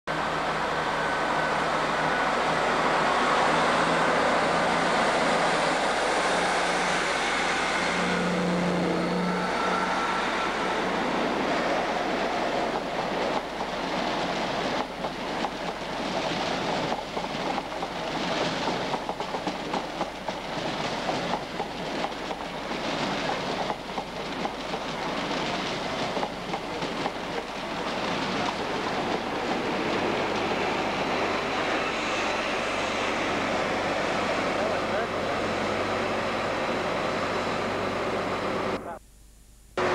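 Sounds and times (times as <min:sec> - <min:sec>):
diesel train engine: 0:00.1 - 0:39.0
train coaches clattering over rails: 0:12.6 - 0:35.5.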